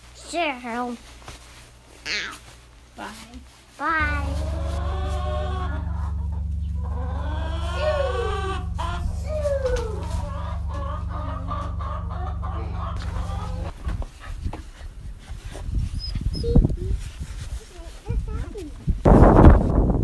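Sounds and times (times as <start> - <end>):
low hum: 4.0 - 14.5
chickens clucking: 9.7 - 14.0.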